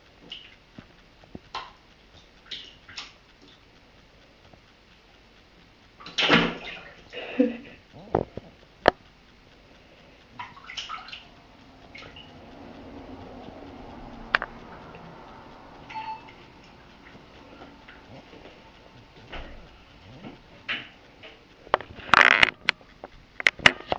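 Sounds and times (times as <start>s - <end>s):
kitten splashing in bathwater: 0.2s - 0.6s, 1.5s - 3.6s, 6.0s - 7.8s, 10.4s - 14.2s.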